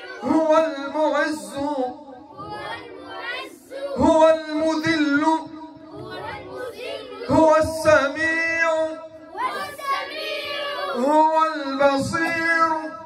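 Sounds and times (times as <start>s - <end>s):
children singing: 0.0s - 0.4s, 2.3s - 4.2s, 5.9s - 7.6s, 9.3s - 11.1s.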